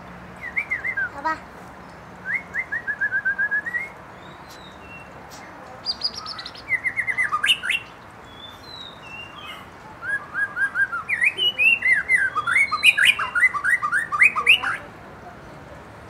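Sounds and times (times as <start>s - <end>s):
bird singing whistled notes: 0.4s - 1.2s, 2.2s - 5.1s, 5.8s - 14.8s.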